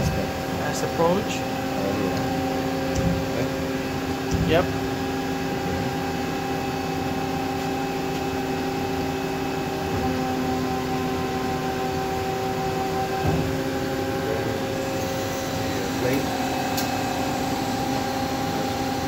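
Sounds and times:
bandsaw humming: 9.5 - 19.0.

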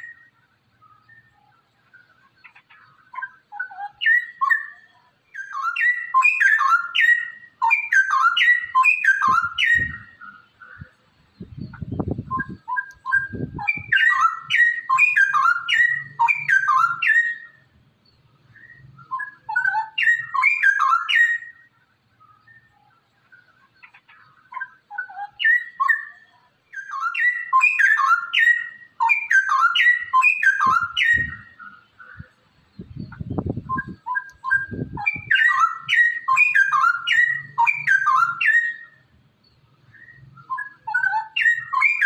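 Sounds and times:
bird warbling: 11.8 - 17.7, 18.5 - 32.4, 33.0 - 39.1, 39.9 - 42.0.

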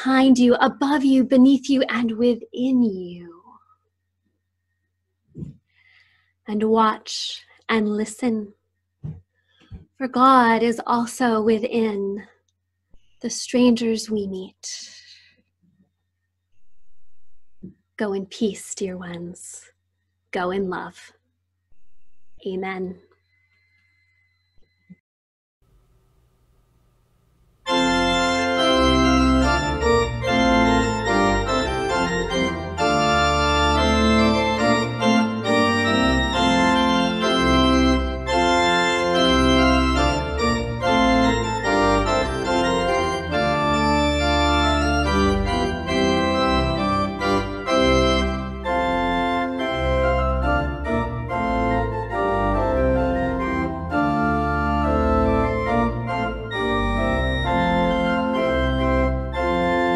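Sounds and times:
pipe organ playing chords: 27.6 - 59.9.

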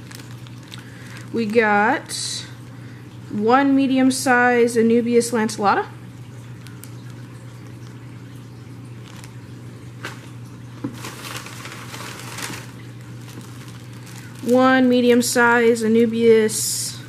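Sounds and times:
plastic bag and paper crinkling: 0.0 - 2.2, 6.4 - 15.6
steady low hum: 0.0 - 17.0.

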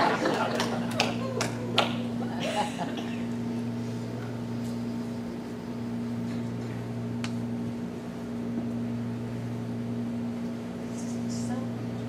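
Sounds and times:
mechanical room hum: 0.0 - 12.0.

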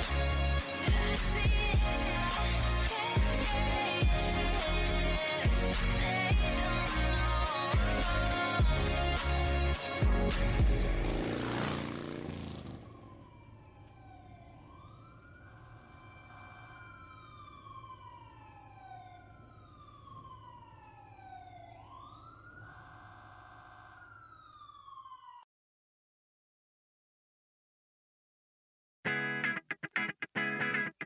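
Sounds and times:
loud pop music: 0.0 - 11.1
faint siren-like wail: 11.2 - 25.5.

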